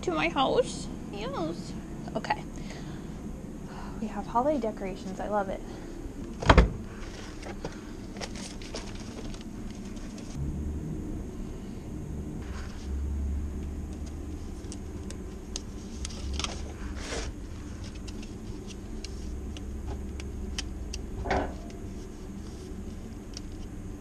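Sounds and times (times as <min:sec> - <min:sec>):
low steady rumble: 0:00.0 - 0:24.0
paper plates clicking and rustling: 0:07.0 - 0:10.4, 0:13.9 - 0:20.2.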